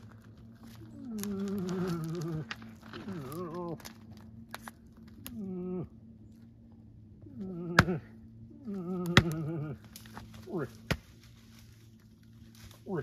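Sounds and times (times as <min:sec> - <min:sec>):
man imitating moose calls: 0:07.3 - 0:09.8.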